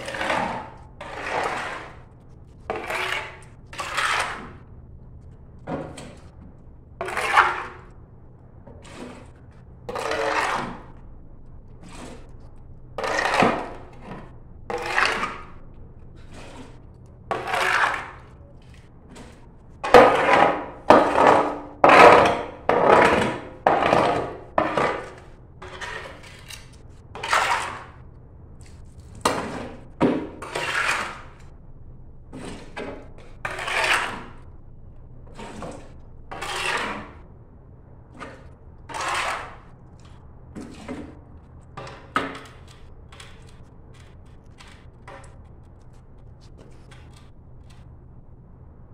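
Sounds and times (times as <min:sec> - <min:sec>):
shovel scraping tiled floor: 0:00.0 - 0:04.6, 0:07.0 - 0:08.0, 0:08.7 - 0:11.0, 0:11.7 - 0:28.0, 0:28.6 - 0:31.5, 0:32.3 - 0:34.5, 0:35.2 - 0:37.2, 0:38.1 - 0:41.2.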